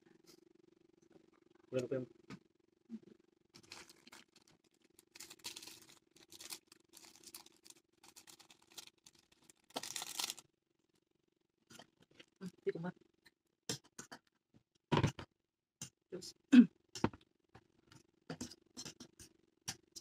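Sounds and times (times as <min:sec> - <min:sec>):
plastic sachets tearing and crinkling: 0:03.6 - 0:10.4.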